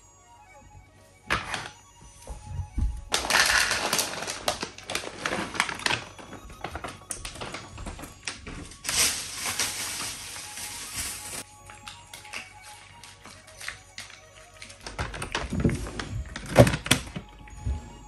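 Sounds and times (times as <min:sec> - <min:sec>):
cats crunching food: 0:03.2 - 0:08.3.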